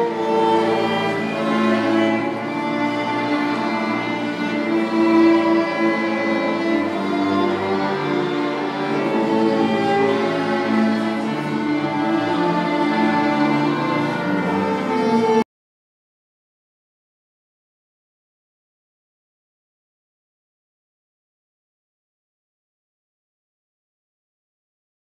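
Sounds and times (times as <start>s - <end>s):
string orchestra accompaniment: 0.0s - 15.4s
solo violin playing: 0.0s - 15.5s.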